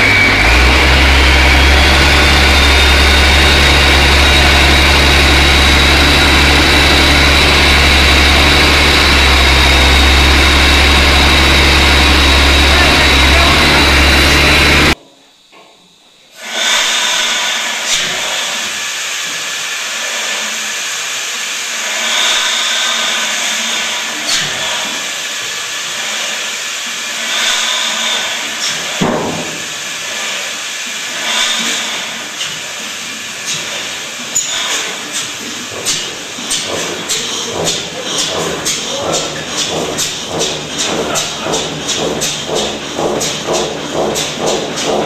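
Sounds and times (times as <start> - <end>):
diesel engine running: 0.0 - 15.0, 18.2 - 45.0
hiss of escaping air: 16.4 - 37.2.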